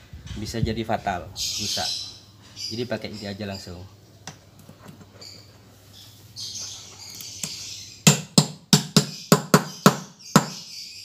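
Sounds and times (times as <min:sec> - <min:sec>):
hammer tapping bearing: 0:07.4 - 0:10.6.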